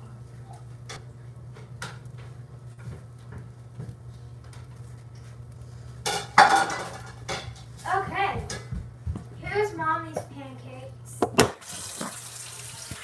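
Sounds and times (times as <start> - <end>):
steady low hum: 0.0 - 11.6
dishes clattering: 6.0 - 7.7.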